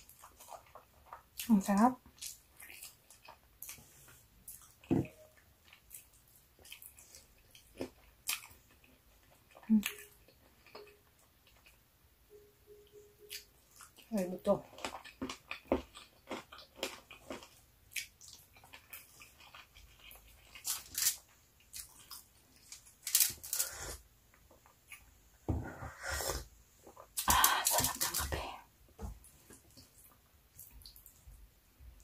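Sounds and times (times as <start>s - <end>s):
wet chewing and lip smacks: 2.1s - 4.9s, 5.6s - 11.8s, 14.8s - 20.8s.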